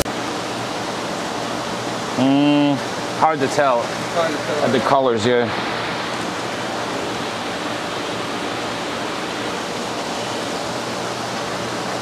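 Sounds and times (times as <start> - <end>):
running water from hoses: 0.0 - 12.0.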